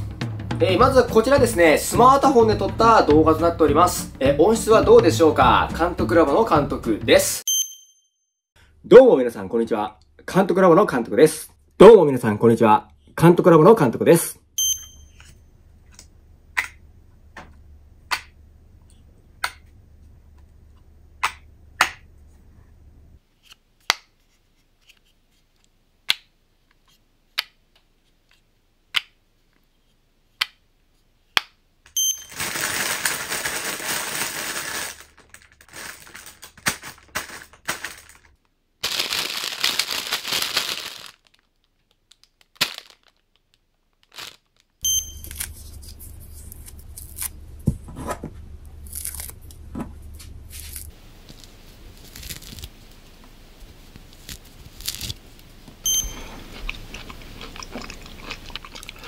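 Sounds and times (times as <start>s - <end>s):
plastic bag crinkling: 32.2s - 47.3s, 50.5s - 53.0s.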